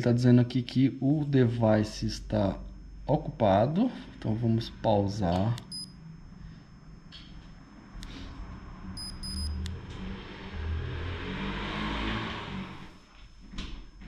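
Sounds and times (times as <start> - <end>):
short electronic beeps: 5.6 - 6.0, 9.0 - 9.6.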